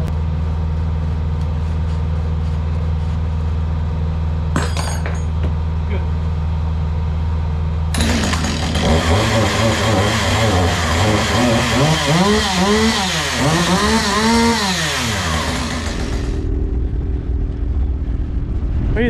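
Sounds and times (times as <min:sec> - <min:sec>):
low engine hum: 0:00.0 - 0:04.6, 0:10.0 - 0:19.0
engine revving: 0:07.9 - 0:19.0.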